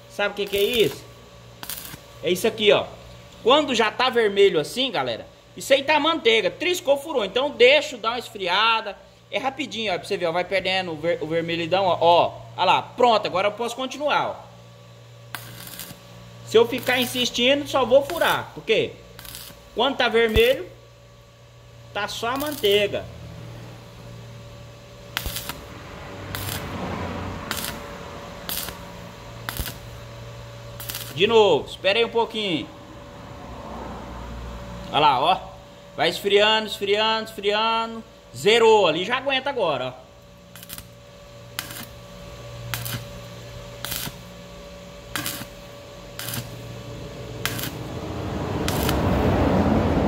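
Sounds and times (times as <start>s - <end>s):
welding arc bursts: 0.0s - 2.7s, 15.3s - 20.8s, 22.0s - 23.1s, 25.0s - 31.7s, 40.4s - 49.6s
steady low hum: 0.0s - 50.0s.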